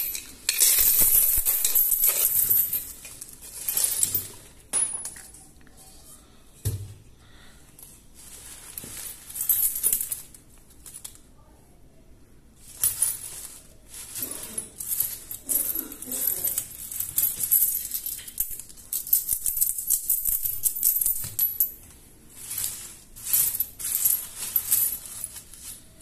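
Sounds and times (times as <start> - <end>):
coins clinking: 0.0 - 5.4, 8.7 - 11.2, 12.8 - 21.8, 22.4 - 26.0.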